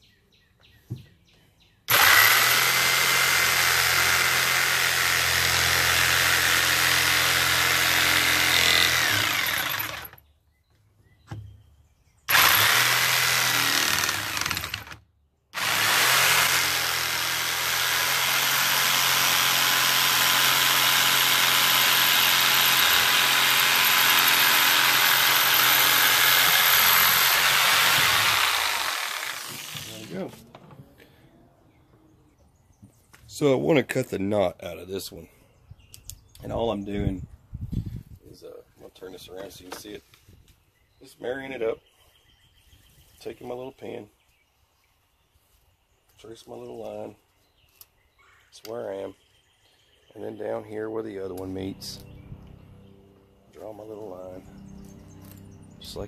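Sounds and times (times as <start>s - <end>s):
electric jigsaw cutting wood: 1.9s - 10.2s, 12.3s - 30.3s.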